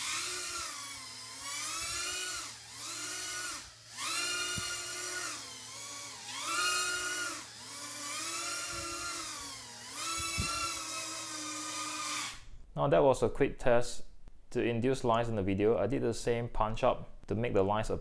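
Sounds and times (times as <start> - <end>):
quadcopter motors whining: 0.0 - 12.4.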